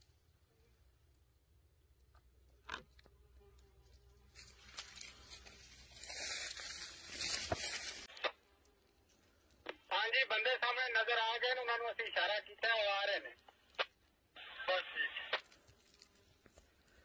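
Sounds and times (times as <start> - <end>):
rustling in dry leaves: 4.2 - 8.2.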